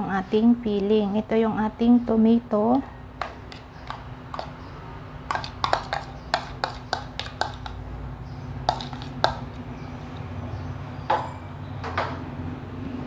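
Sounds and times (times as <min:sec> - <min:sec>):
spoon tapping plastic bowl: 0:03.2 - 0:04.6, 0:05.3 - 0:07.8, 0:08.6 - 0:09.6.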